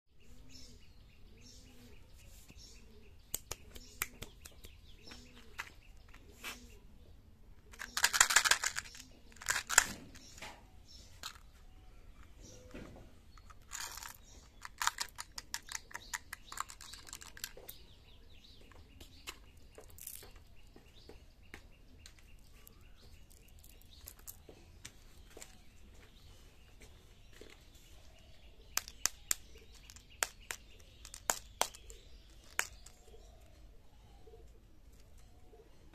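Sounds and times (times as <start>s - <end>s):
mints rattling: 7.7s - 10.4s, 13.4s - 17.8s, 28.7s - 33.2s.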